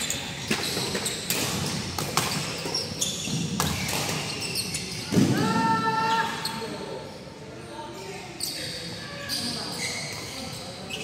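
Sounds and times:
shoes squeaking on court floor: 0.0 - 5.3, 8.4 - 11.0.

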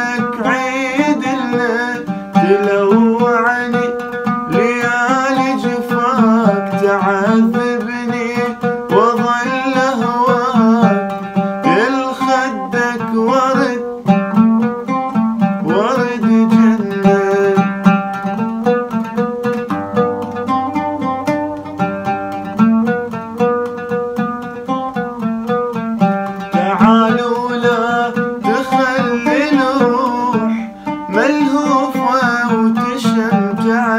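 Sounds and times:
man singing: 0.0 - 19.0, 26.4 - 33.9
oud plucked: 0.0 - 33.9.

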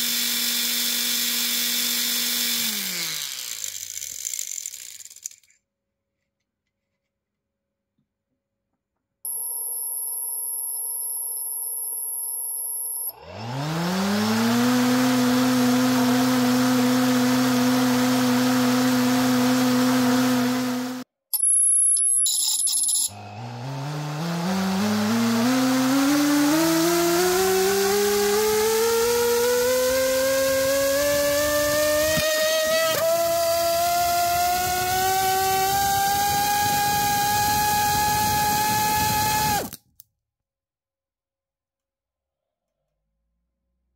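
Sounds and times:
electric motor propeller whine: 0.0 - 4.1, 13.1 - 21.0, 23.1 - 39.7.

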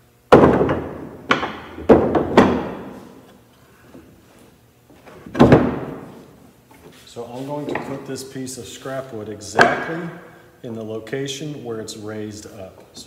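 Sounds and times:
wooden thuds and knocks: 0.3 - 4.1, 5.0 - 6.4, 9.6 - 9.9.

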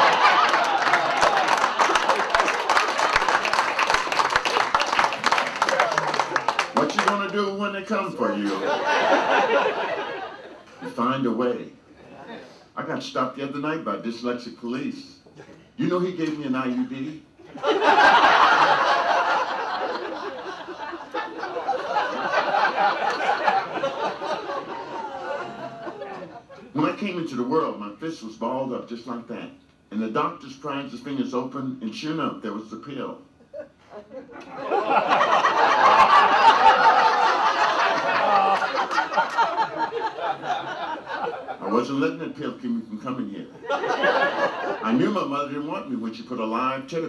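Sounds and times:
audience laughing: 0.0 - 7.2, 8.2 - 11.0, 12.0 - 12.7, 17.4 - 26.7, 33.4 - 41.9, 43.6 - 45.0.

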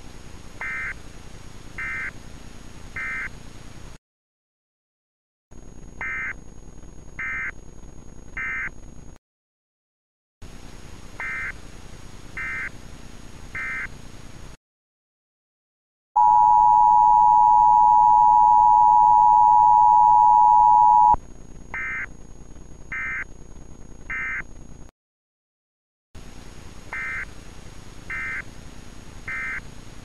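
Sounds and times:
two-tone attention signal: 16.2 - 21.2
short data bursts: 16.2 - 22.1, 28.1 - 28.4, 29.3 - 29.6.

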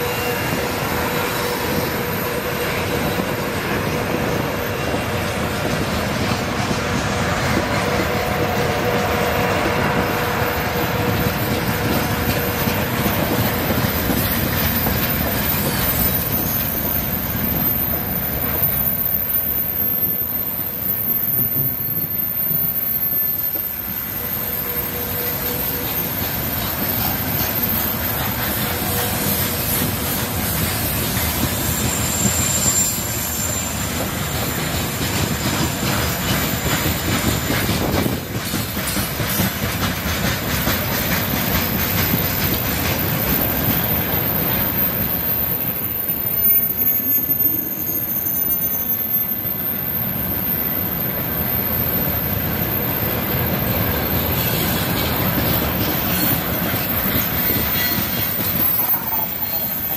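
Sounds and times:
freight train wheels rumbling: 0.0 - 59.9
wheel squeal: 9.9 - 39.6, 40.6 - 59.9.

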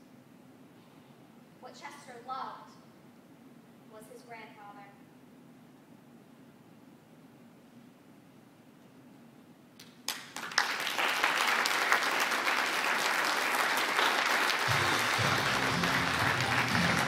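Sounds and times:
audience applause: 10.1 - 17.0.

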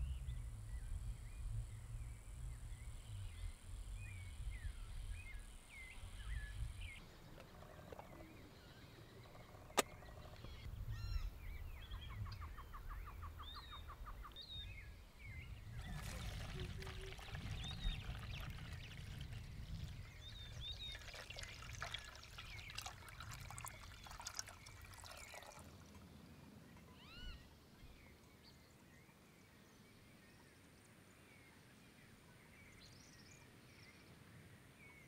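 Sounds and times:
quiet outdoor background: 0.0 - 35.0
coffee pouring into mug: 15.8 - 19.5, 20.3 - 26.0.

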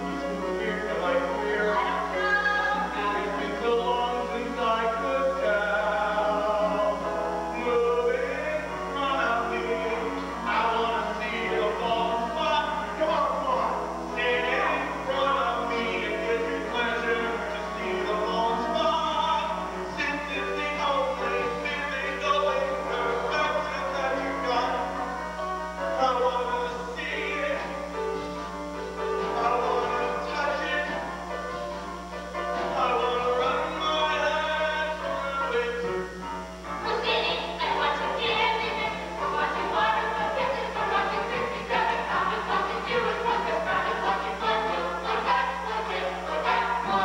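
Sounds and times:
steady low hum: 0.0 - 47.0
cast singing together: 32.3 - 47.0.

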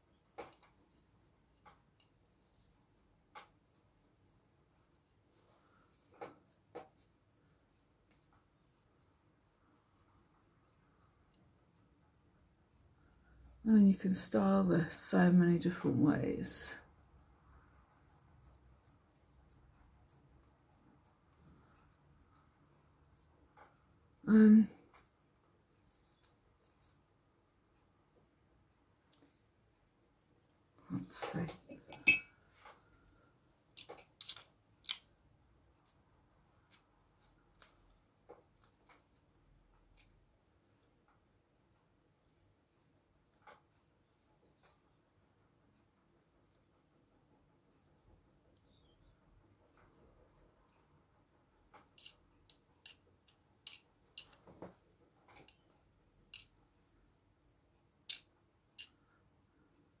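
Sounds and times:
comb strokes through wig: 0.0 - 31.8, 35.4 - 55.7
comb scratching through wig: 0.4 - 14.4, 16.4 - 24.2.

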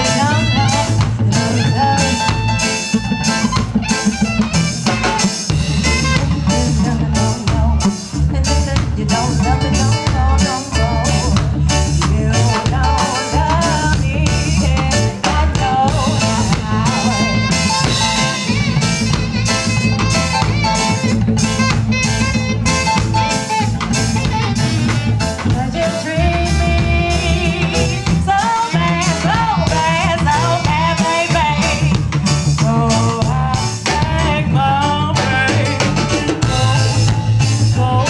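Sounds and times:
woman singing: 0.0 - 2.9, 5.8 - 18.8, 25.4 - 38.0
drum kit beat: 0.0 - 38.0
live reggae band: 0.0 - 38.0.

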